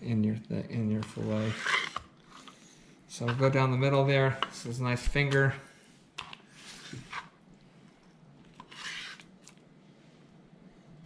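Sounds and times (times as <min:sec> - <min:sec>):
knife scraping through fish: 0:08.6 - 0:09.3.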